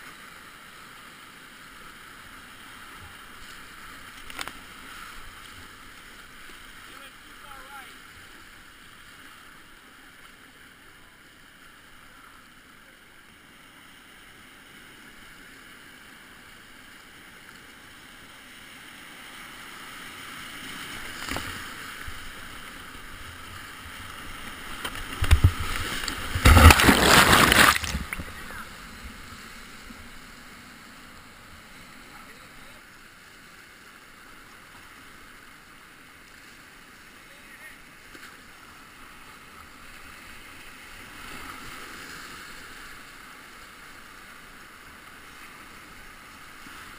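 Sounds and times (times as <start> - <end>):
water splashing over kayak: 19.6 - 30.6
whitewater rapids rushing: 19.6 - 31.2.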